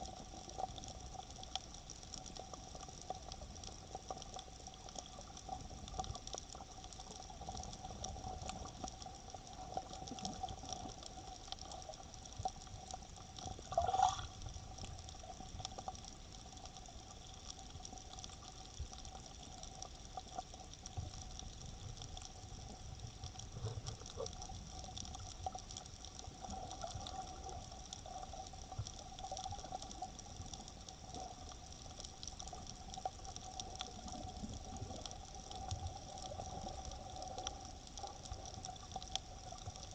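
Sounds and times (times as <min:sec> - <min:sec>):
faint steady hum: 0:00.0 - 0:39.9
small crackling clicks: 0:00.0 - 0:39.9
underwater water wash: 0:00.0 - 0:39.9
water gurgling burst: 0:13.5 - 0:14.7.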